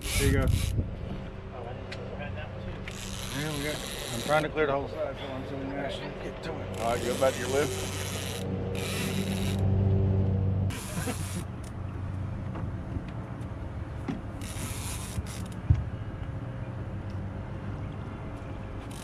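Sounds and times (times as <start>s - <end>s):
boat motor humming: 0.0s - 19.0s.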